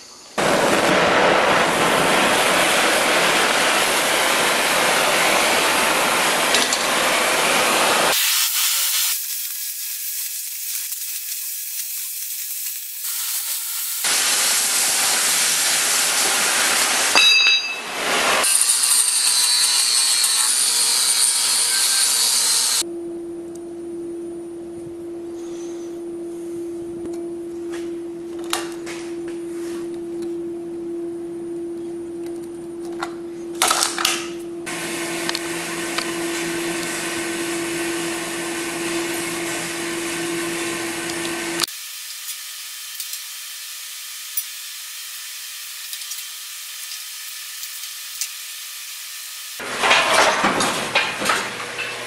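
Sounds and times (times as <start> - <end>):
cutting torch hissing: 0.0 - 17.2, 17.9 - 22.8, 34.7 - 49.6
steady hum: 22.8 - 36.3.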